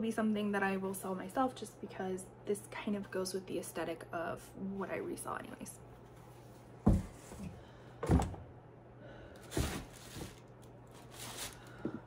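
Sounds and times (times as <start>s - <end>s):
shoes thumping down: 6.8s - 8.4s
rustling scrapes: 9.5s - 11.7s.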